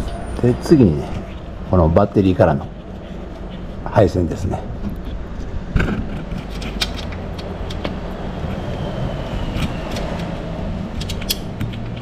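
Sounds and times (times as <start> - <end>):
steady low rumble: 0.0 - 12.0
clicks and small metal knocks: 5.8 - 8.0.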